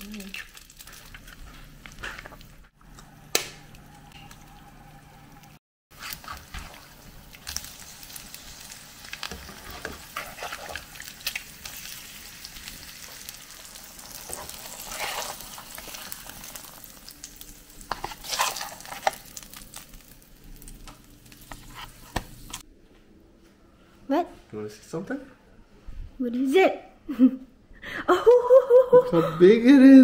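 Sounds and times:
eggs sizzling in oil: 0.0 - 22.6
spatula scraping and tapping pan: 17.9 - 19.2, 21.4 - 22.6.

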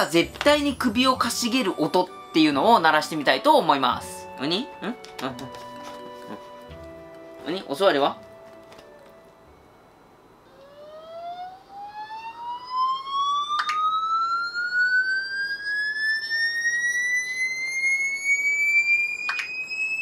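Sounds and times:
rising electronic tone: 9.4 - 20.0.

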